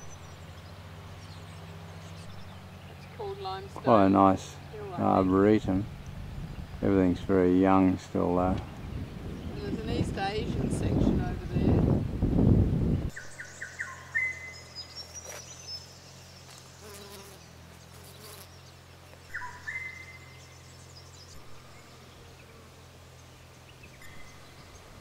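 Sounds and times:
bee buzzing: 15.1 - 25.0.

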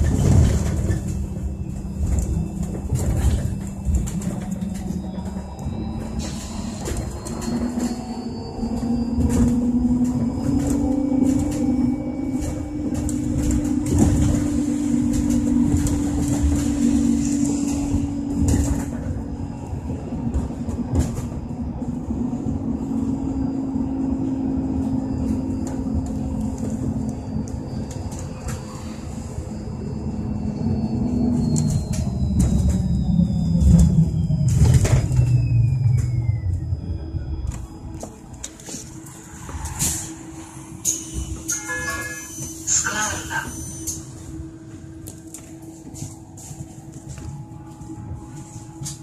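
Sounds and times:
knocks and rattles from bus body: 0.0 - 8.0, 8.7 - 22.1
road rumble: 0.0 - 49.0.

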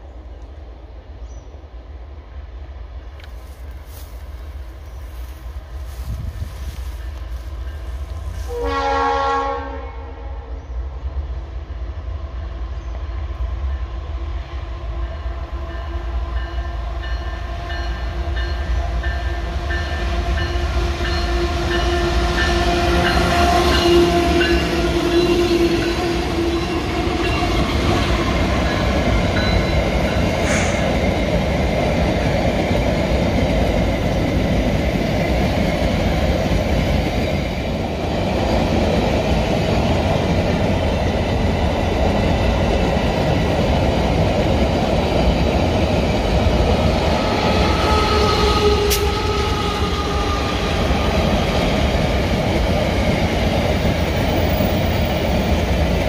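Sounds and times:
locomotive horn: 8.4 - 10.5, 21.2 - 27.6, 47.6 - 50.7
locomotive engine passing: 17.4 - 56.0.

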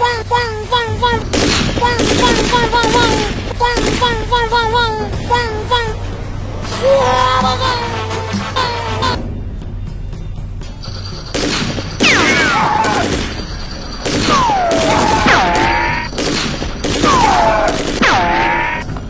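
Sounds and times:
simulated machine-gun fire: 1.3 - 4.0, 11.2 - 18.7.

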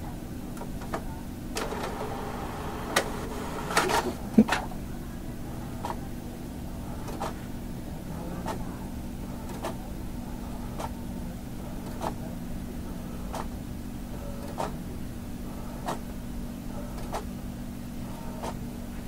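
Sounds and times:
printer humming: 0.6 - 18.7
printer clicks: 1.6 - 4.6.

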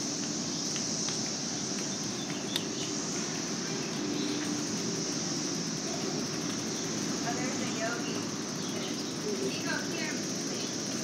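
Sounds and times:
high-pitched insect drone: 0.0 - 11.0
low hum of street traffic: 0.0 - 11.0.

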